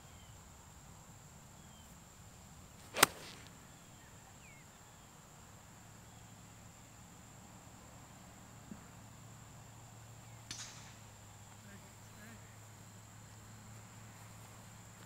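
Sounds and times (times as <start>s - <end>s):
golf club striking ball: 2.9s - 3.5s.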